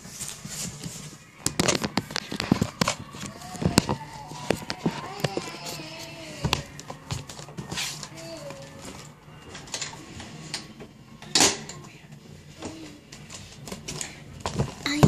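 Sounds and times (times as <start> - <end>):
faint voice: 1.2 - 9.7
objects clicking and knocking: 1.4 - 5.5.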